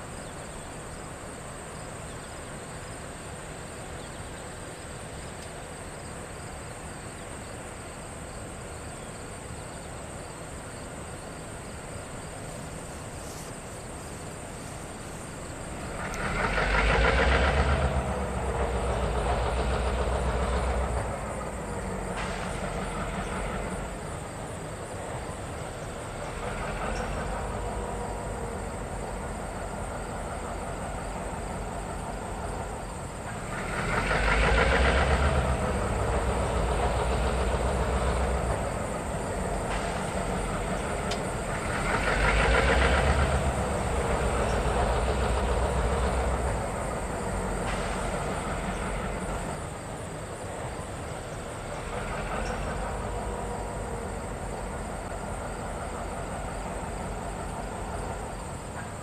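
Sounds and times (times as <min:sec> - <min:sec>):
diesel locomotive passing: 0:00.0 - 0:59.0.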